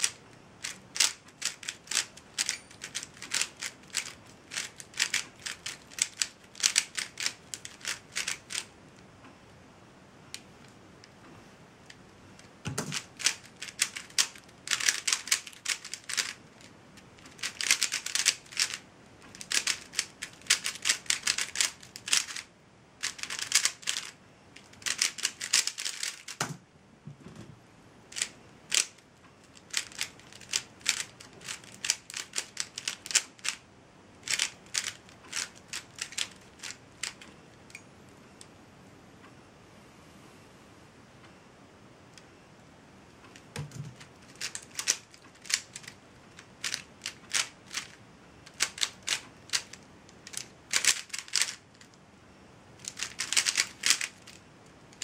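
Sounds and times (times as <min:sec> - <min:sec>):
puzzle cube plastic clicking: 0:00.0 - 0:08.7, 0:11.9 - 0:26.5, 0:28.1 - 0:33.6, 0:34.2 - 0:37.8, 0:43.3 - 0:51.9, 0:52.8 - 0:55.0.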